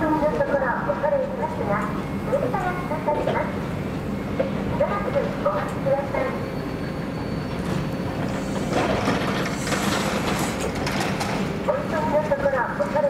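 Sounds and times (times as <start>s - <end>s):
train low hum: 0.0s - 13.0s
metallic clattering of wheels on rails: 4.3s - 12.1s.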